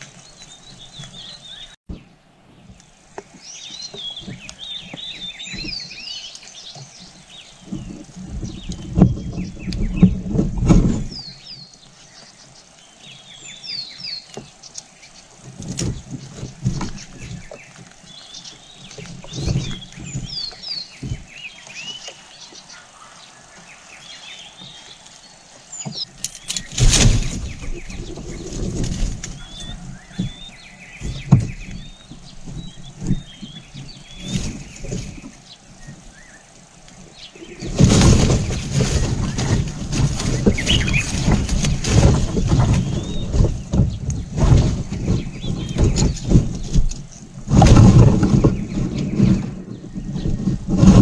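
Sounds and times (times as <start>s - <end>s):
wind buffeting microphone: 0.0s - 14.6s, 15.2s - 22.8s, 25.9s - 51.0s
loud rustling with low rumble: 0.0s - 51.0s
small birds chirping: 0.0s - 51.0s.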